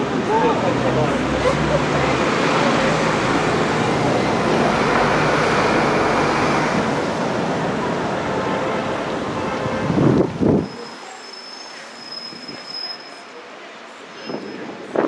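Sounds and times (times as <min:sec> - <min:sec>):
passing road traffic: 0:00.0 - 0:15.0.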